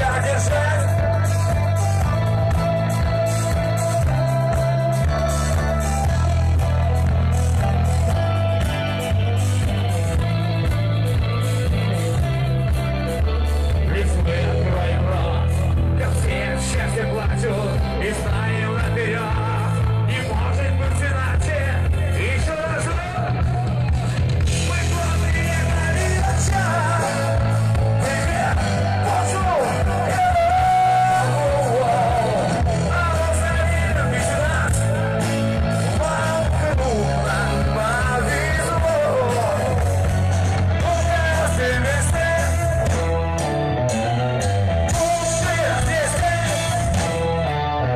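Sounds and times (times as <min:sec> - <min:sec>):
live band playing: 0:00.0 - 0:47.9
person singing rock song: 0:00.0 - 0:47.9
steady bass line: 0:00.0 - 0:47.9.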